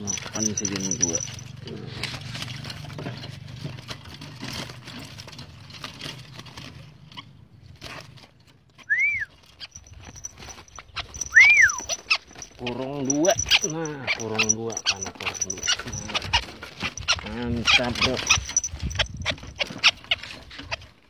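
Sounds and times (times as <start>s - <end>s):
rustling and clattering: 0.0s - 21.0s
short rising and falling whistles: 8.9s - 9.3s, 11.3s - 11.8s.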